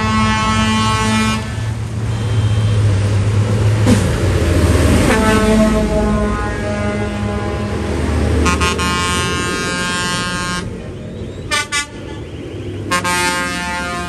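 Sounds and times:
vehicle horn: 0:00.0 - 0:02.9, 0:05.0 - 0:10.8, 0:11.5 - 0:14.0
tractor engines running: 0:00.0 - 0:14.0.

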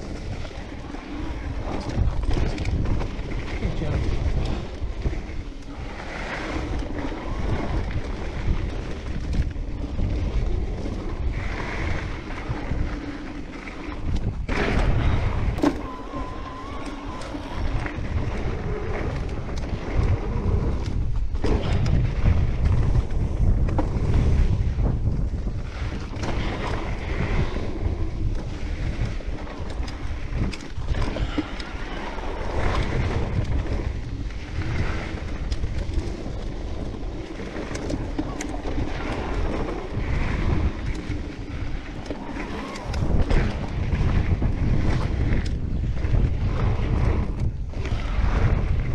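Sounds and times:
wind buffeting microphone: 0:00.0 - 0:48.9
brief squeal: 0:15.6 - 0:17.7
bike knocks and rattles: 0:19.0 - 0:27.5.

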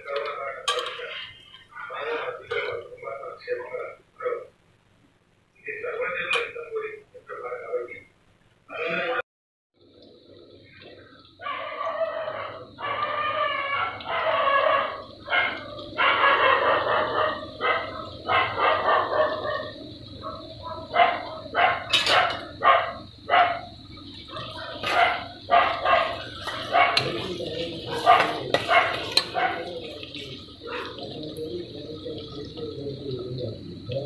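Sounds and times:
onions sizzling in oil: 0:10.3 - 0:34.0
dog barking and whining: 0:11.4 - 0:23.7, 0:24.6 - 0:27.2.

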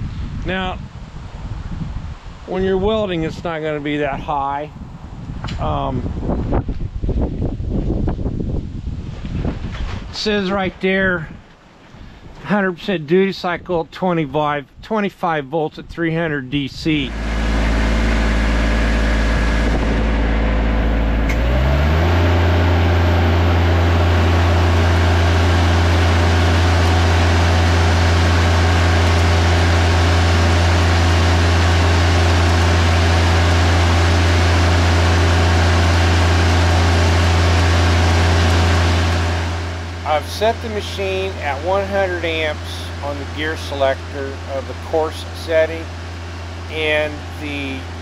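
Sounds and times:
welder engine running: 0:17.0 - 0:48.0
welding arc crackling: 0:22.2 - 0:40.8.

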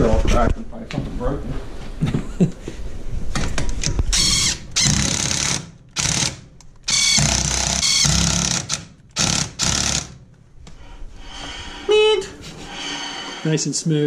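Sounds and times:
impact wrench hammering: 0:04.2 - 0:10.2.

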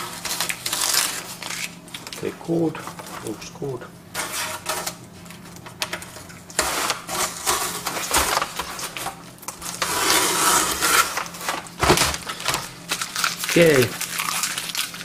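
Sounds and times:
paper crinkling: 0:00.0 - 0:03.6, 0:04.2 - 0:15.0
tape ripping away: 0:00.2 - 0:02.0.

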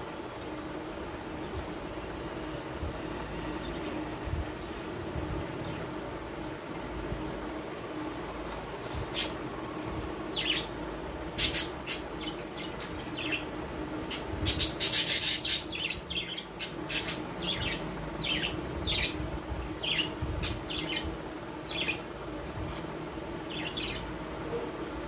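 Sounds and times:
faint steady hum: 0:00.0 - 0:25.0
parrots chirping: 0:11.4 - 0:13.5, 0:14.1 - 0:22.1.

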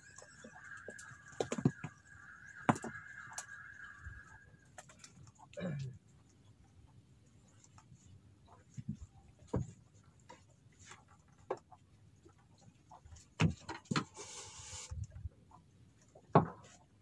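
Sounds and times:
fishing rods and reels clicking: 0:00.0 - 0:05.6, 0:14.0 - 0:15.2.

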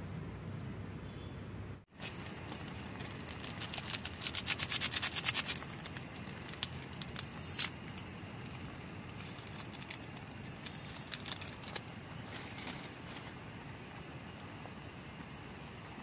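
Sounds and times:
low background noise: 0:00.0 - 0:16.0
clicks and rustles: 0:01.9 - 0:13.4
sachet crinkling and tearing: 0:02.0 - 0:13.4.

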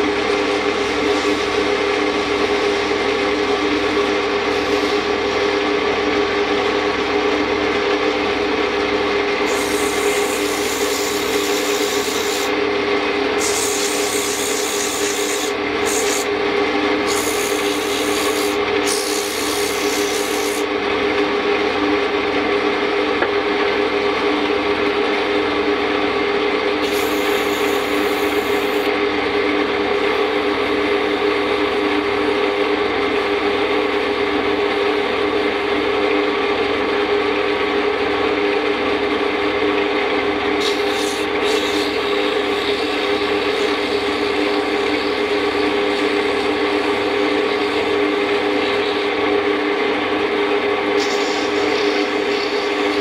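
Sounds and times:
lathe motor humming: 0:00.0 - 0:53.0
sandpaper sanding spinning wood: 0:09.5 - 0:12.5, 0:13.4 - 0:16.3, 0:17.0 - 0:20.7, 0:26.8 - 0:28.9, 0:40.6 - 0:49.1.

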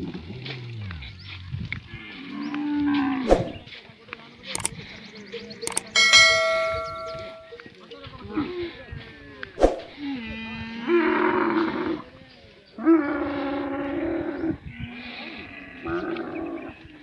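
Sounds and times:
sharp click: 0:05.7 - 0:07.5.

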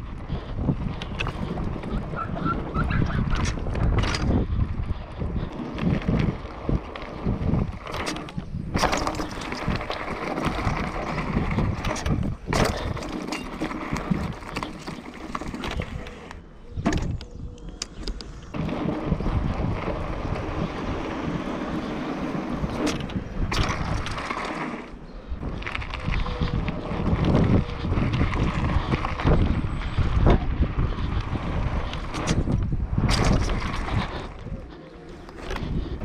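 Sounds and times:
tyres rolling on gravel: 0:00.0 - 0:16.5, 0:18.2 - 0:36.0
bike rattling: 0:00.0 - 0:36.0
sharp knocks of bike landings: 0:11.6 - 0:15.7.

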